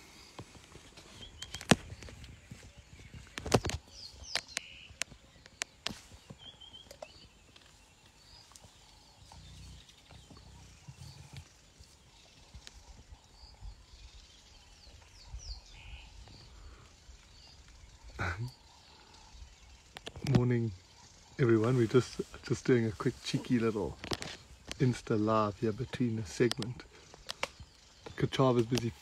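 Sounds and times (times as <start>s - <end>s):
birds chirping faintly: 0.0s - 29.0s
sharp clicks: 26.4s - 27.6s.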